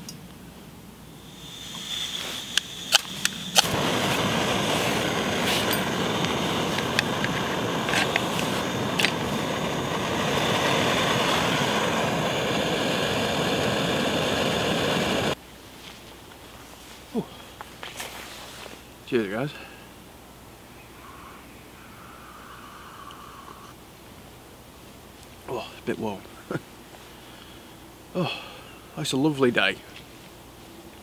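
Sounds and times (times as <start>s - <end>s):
gas burner hissing: 1.2s - 15.4s.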